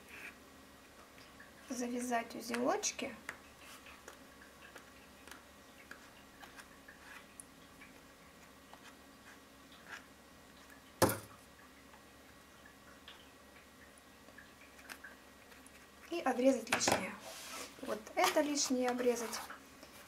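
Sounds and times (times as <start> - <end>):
paper and thread rustling: 17.2 - 20.0.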